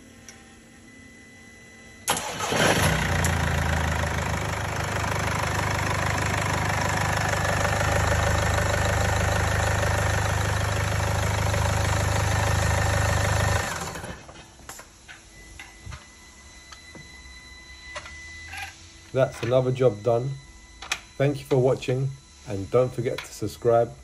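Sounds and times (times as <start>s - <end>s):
diesel engine idling: 2.2s - 14.2s
engine running down: 2.2s - 14.2s.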